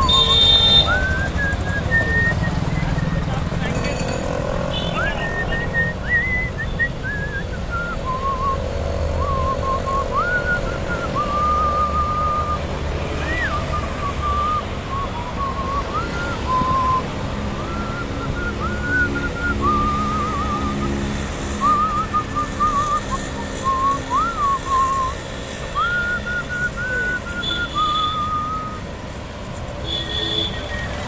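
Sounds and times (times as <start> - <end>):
person whistling a tune: 0.0 - 3.6, 5.0 - 29.2, 30.2 - 31.0
road traffic noise: 0.0 - 31.0.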